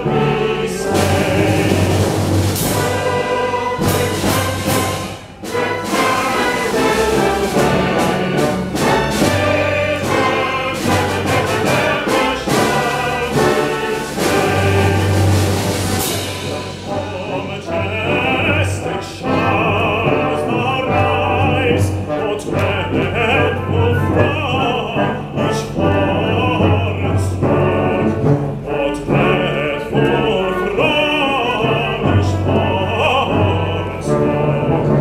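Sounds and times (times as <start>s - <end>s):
operatic voice singing: 0.0s - 4.5s, 5.8s - 15.2s, 16.5s - 35.0s
orchestra playing: 0.0s - 35.0s.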